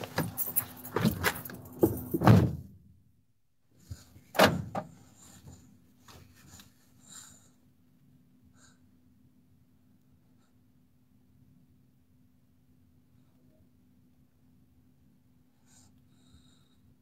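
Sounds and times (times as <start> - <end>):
knocks and clatter in van cab: 0.0 - 2.7, 4.4 - 5.0
faint steady hum: 3.1 - 17.0.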